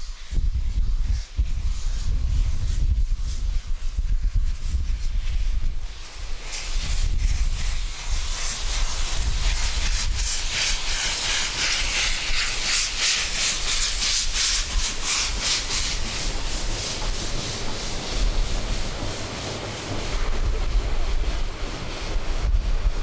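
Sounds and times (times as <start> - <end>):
steam hiss: 0.0 - 23.0
steam locomotive exhaust beats: 0.0 - 23.0
low rumble: 14.6 - 23.0.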